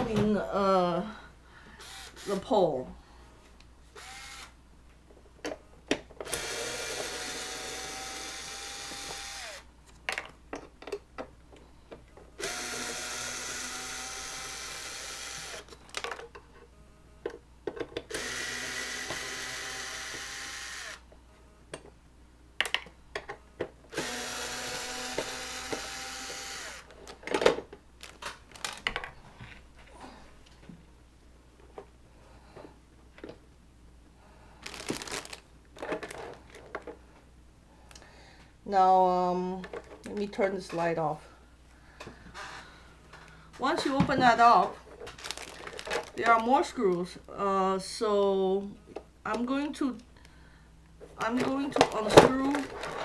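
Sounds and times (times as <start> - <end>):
electric drill-driver whirring: 1.8 - 2.4, 4.0 - 4.6, 6.2 - 9.7, 12.4 - 15.7, 18.1 - 21.1, 23.9 - 26.9.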